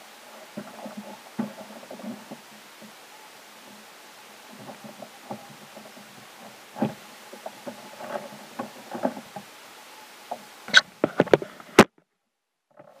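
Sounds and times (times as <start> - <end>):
soft knocks in a kayak: 4.5 - 9.5.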